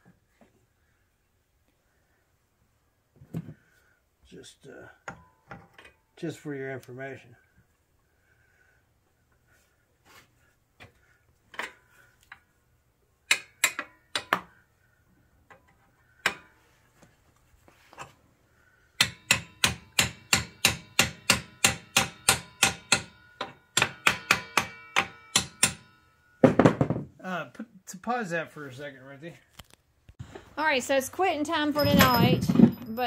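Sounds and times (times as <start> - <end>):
hammer striking metal: 19.0 - 26.8.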